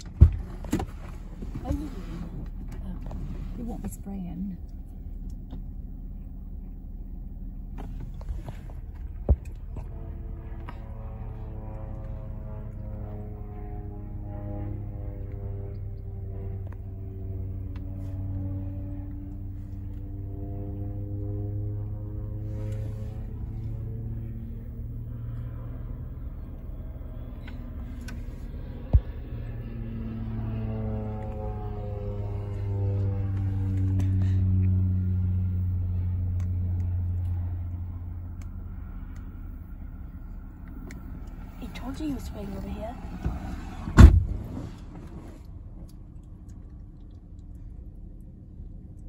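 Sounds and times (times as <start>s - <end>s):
airplane engine and propeller droning: 0.0s - 49.0s
vehicle interior low rumble: 0.0s - 49.0s
sharp thump: 43.2s - 44.7s.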